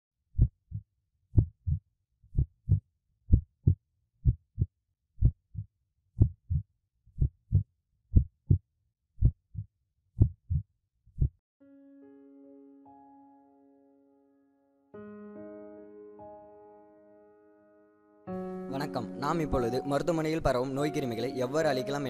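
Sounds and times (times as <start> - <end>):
heartbeat thumps: 2.4 - 5.4, 7.2 - 8.6.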